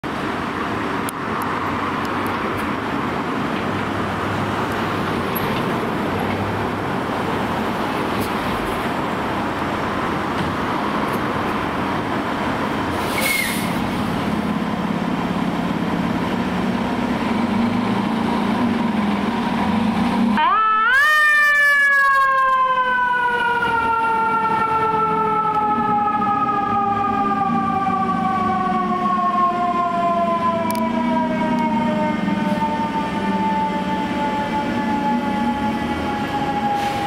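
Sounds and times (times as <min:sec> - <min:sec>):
diesel engine running: 0:00.0 - 0:20.4
air brakes hiss: 0:12.9 - 0:13.8, 0:36.7 - 0:37.0.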